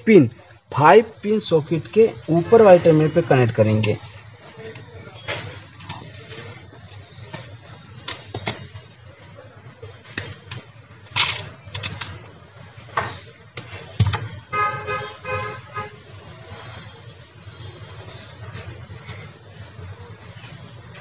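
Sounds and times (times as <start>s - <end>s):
wires clicking and rustling: 10.0s - 12.4s.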